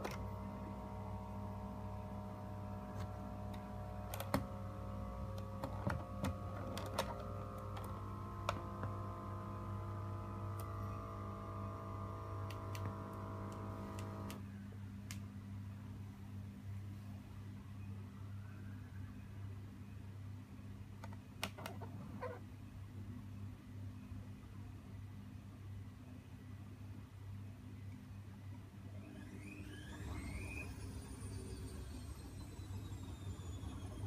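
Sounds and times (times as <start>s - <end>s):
small electric air pump running: 0.0s - 14.4s.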